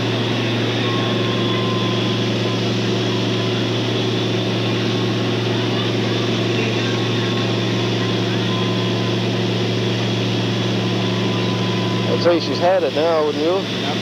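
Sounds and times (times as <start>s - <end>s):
low drone: 0.0s - 14.0s.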